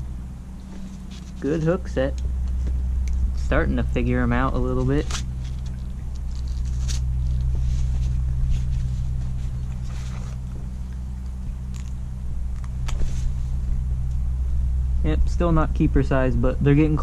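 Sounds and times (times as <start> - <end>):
low mechanical hum: 0.0 - 17.0.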